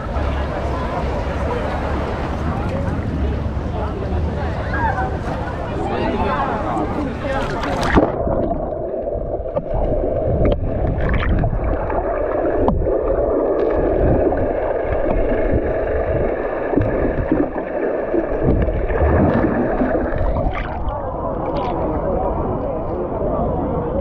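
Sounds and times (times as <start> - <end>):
motorboat engine: 0.0 - 8.2
water rushing: 0.0 - 23.2.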